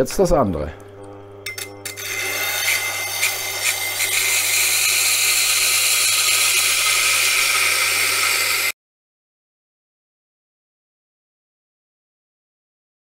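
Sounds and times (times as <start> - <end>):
grinder motor hum: 0.0 - 8.8
blade rasping on grinding wheel: 1.5 - 8.8.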